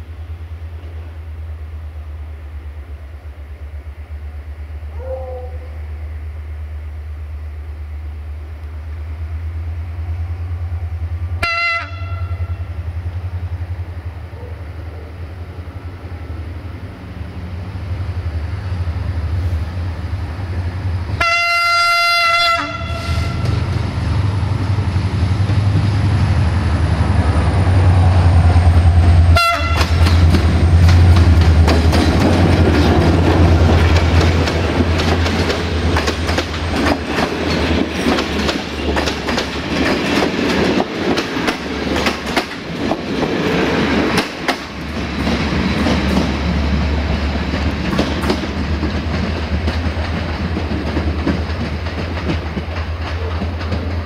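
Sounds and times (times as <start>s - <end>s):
locomotive engine rumbling: 0.0s - 54.0s
train horn blasts: 11.4s - 12.8s, 21.2s - 23.7s, 29.2s - 30.0s
wheels clacking over rail joints: 28.4s - 54.0s.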